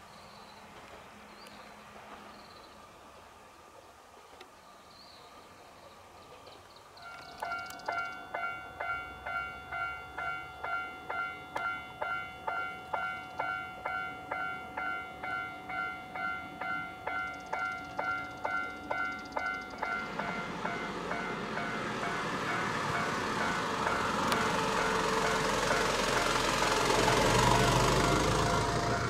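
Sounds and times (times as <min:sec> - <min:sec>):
approaching train: 0:00.0 - 0:29.0
level-crossing warning bell ringing: 0:07.0 - 0:29.0.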